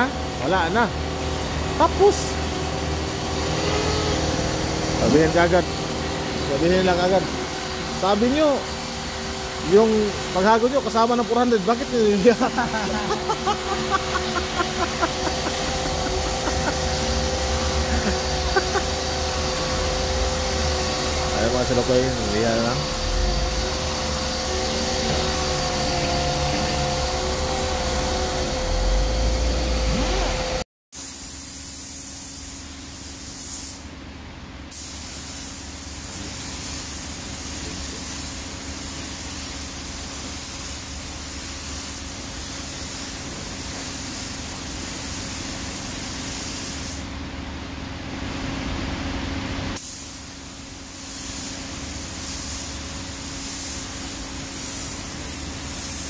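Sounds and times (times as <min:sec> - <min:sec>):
orbital sander whining: 0:00.0 - 0:30.6
paint spray gun hissing: 0:01.0 - 0:27.6, 0:31.0 - 0:33.9, 0:34.7 - 0:47.2, 0:49.8 - 0:56.0.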